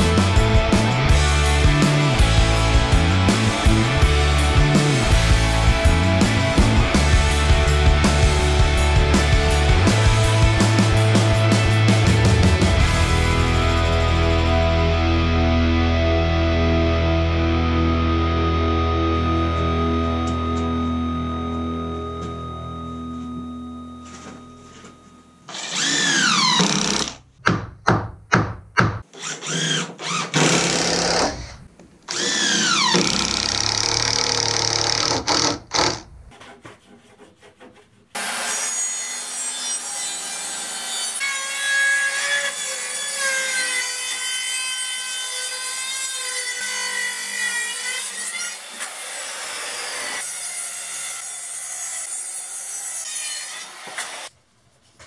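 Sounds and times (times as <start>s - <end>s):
circular saw cutting wood: 23.7s - 27.2s, 29.1s - 54.3s.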